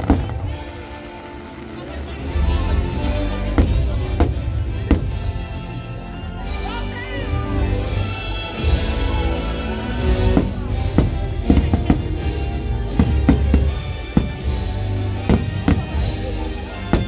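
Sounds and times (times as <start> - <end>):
fireworks bursting: 0.0 - 5.6, 9.0 - 17.0
show music: 0.0 - 17.0.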